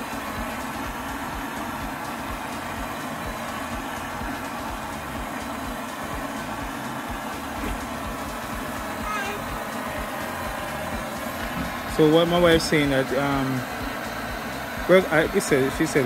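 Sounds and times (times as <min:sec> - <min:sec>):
gas torch burning: 0:00.0 - 0:16.0.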